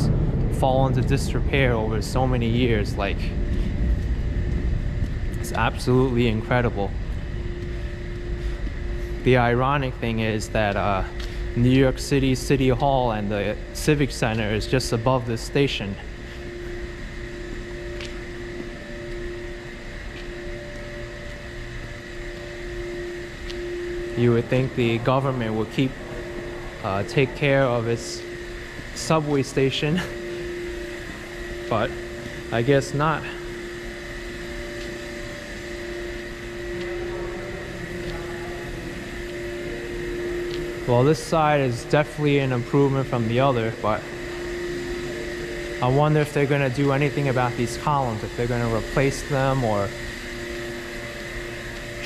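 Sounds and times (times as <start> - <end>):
low rumble: 0.0 - 33.6
mechanical hum with held tones: 0.0 - 52.0.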